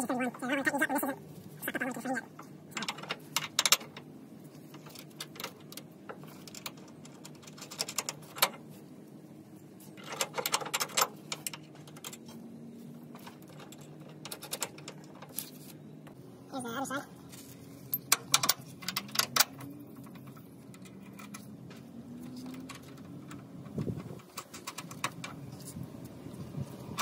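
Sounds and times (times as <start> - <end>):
metallic clicks and rattles: 2.3 - 8.6, 9.9 - 12.4, 13.0 - 15.6, 17.9 - 26.3.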